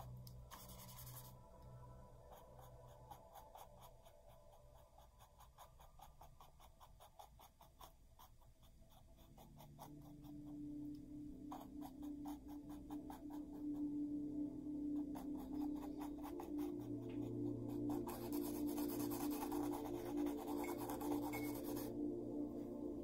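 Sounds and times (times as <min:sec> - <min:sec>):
faint low tone: 0:13.4 - 0:23.0.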